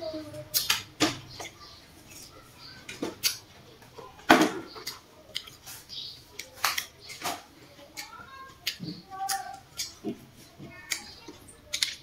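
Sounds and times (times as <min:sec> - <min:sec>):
person chewing watermelon: 0:04.8 - 0:07.2, 0:07.9 - 0:12.0.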